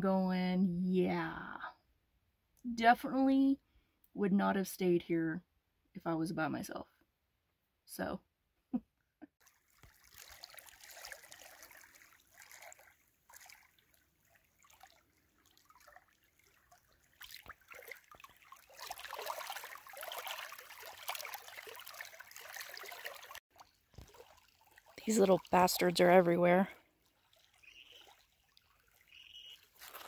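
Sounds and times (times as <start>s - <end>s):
small waves lapping over pebbles: 9.4s - 30.0s.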